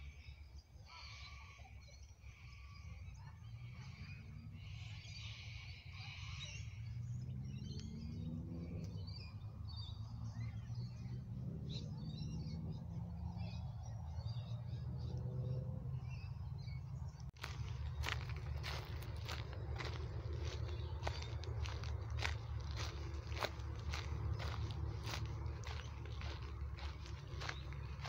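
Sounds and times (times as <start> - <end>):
birds chirping: 0.0 - 28.0
low rumble: 14.9 - 28.0.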